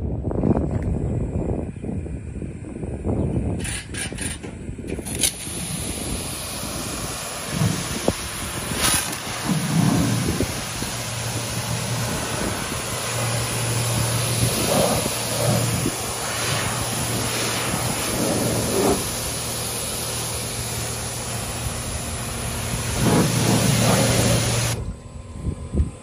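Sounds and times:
low even hum: 4.7 - 26.0
road sweeper hiss: 4.9 - 25.0.

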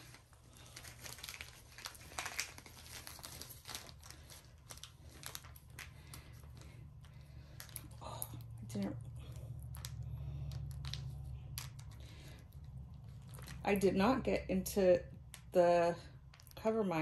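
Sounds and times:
plastic packaging crinkling: 0.0 - 13.9
low steady hum: 0.0 - 17.0.

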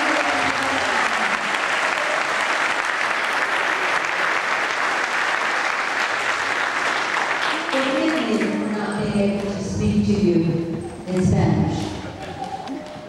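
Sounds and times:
crowd applauding: 0.0 - 9.6, 10.7 - 13.0.

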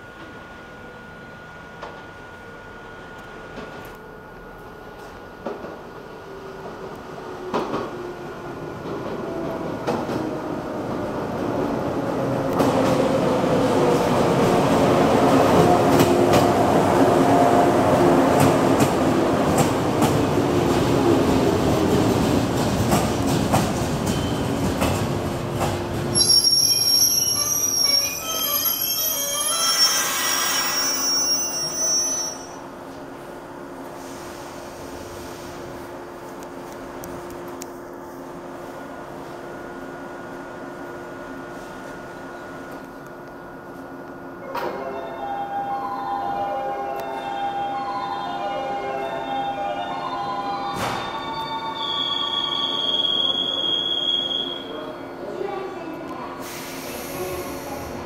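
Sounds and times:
electric train rumbling: 0.0 - 58.0
steady train hum: 0.0 - 58.0
high brake squeal: 26.2 - 32.6, 51.0 - 54.8.

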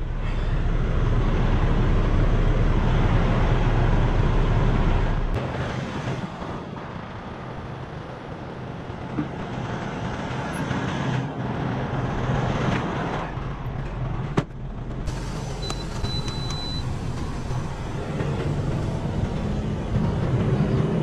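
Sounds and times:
diesel truck engine idling: 0.0 - 5.4, 13.3 - 21.0.

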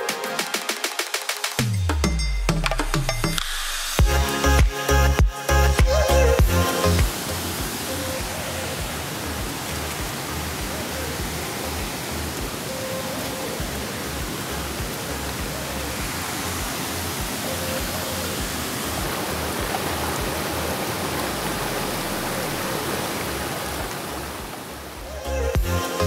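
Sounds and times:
waterfall rushing: 2.9 - 26.0
faint music: 4.0 - 26.0.

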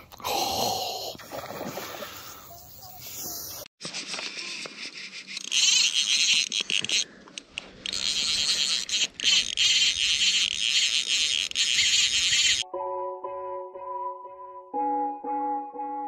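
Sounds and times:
fishing reel clicker ratcheting: 5.4 - 12.6.

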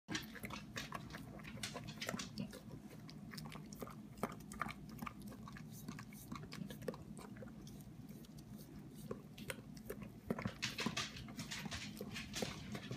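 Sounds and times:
dog licking a pan: 0.1 - 12.9.

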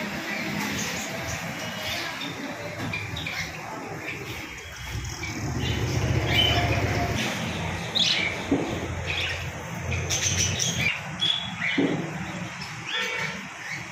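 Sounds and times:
budgerigars chirping: 0.2 - 13.9.

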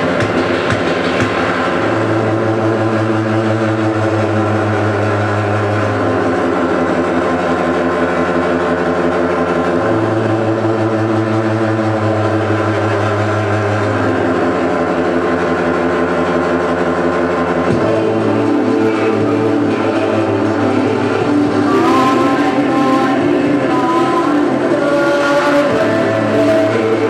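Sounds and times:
band playing distorted drone: 0.0 - 27.0.

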